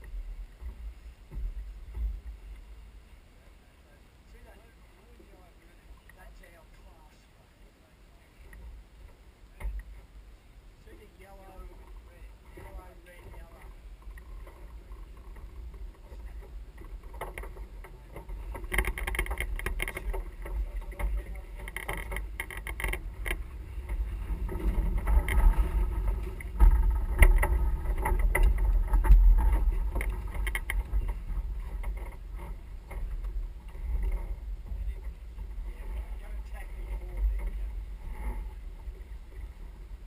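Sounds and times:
wind rumbling on microphone: 0.0 - 40.0
crew noise: 11.7 - 39.5.

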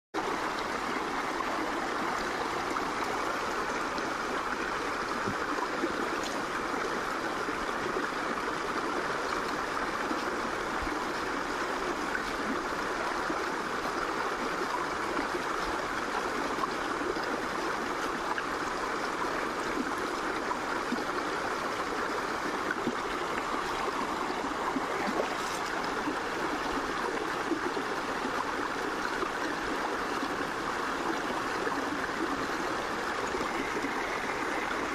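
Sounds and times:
stream rushing over rocks: 0.2 - 34.9.

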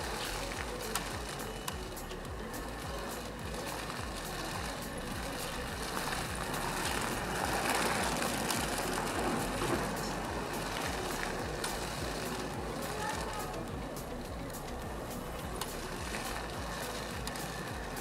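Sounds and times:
toy car electric motor and gears: 0.0 - 18.0.

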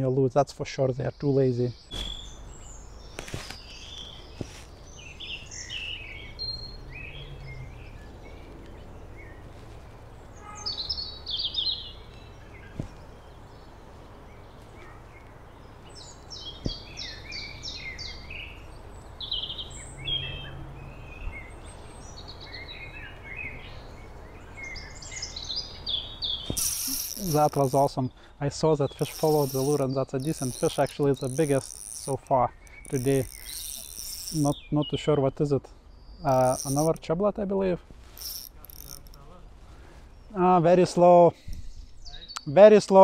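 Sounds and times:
small birds chirping: 0.7 - 43.0
faint clicks: 29.0 - 34.6, 38.2 - 39.2.

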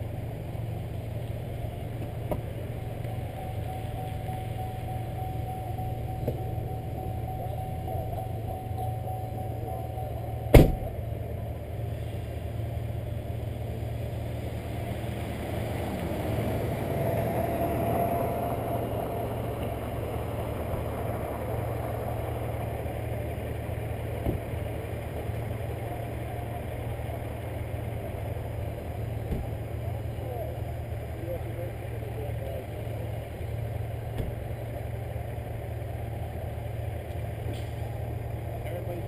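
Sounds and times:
car engine idling: 0.0 - 39.0.

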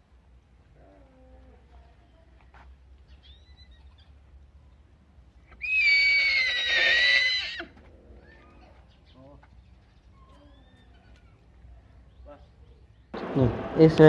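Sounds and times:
horse whinnying: 5.6 - 8.6.

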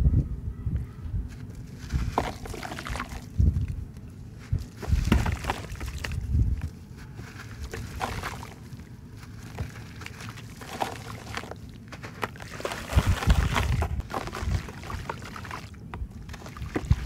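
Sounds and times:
hands crumbling dried mud: 1.3 - 17.0.

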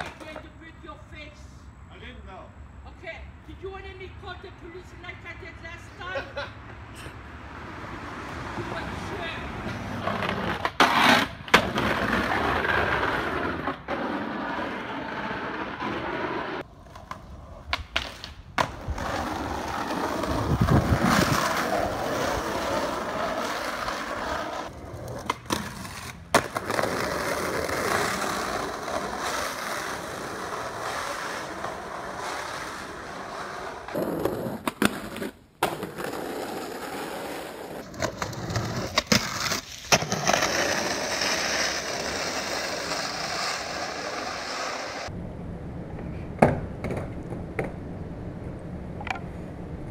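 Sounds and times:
skateboard clacking: 0.0 - 0.5, 10.0 - 45.1, 46.3 - 47.8, 49.0 - 49.3
skateboard wheels rolling on pavement: 0.0 - 1.6, 3.0 - 49.9.

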